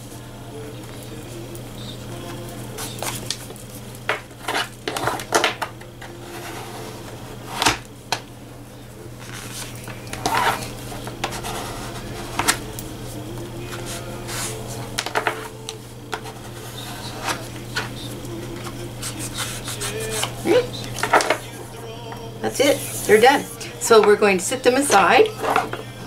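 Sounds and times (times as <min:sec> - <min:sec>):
steady low hum: 0:00.0 - 0:26.0
craft tools knocking and scraping: 0:14.9 - 0:15.5, 0:18.6 - 0:21.5, 0:24.9 - 0:25.9.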